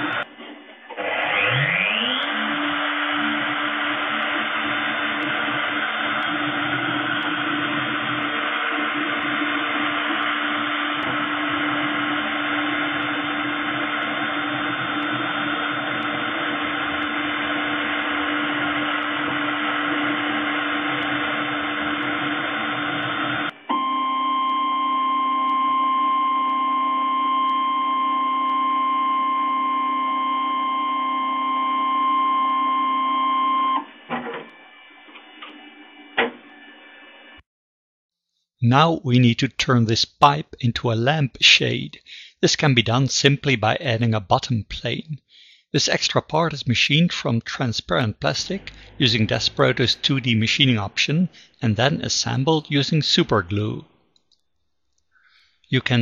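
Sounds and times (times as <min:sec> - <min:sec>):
milling machine cutting: 0:00.0 - 0:23.8, 0:48.4 - 0:51.6
spindle whine with high tone: 0:00.0 - 0:37.4, 0:48.2 - 0:52.7
low hum: 0:48.0 - 0:52.0.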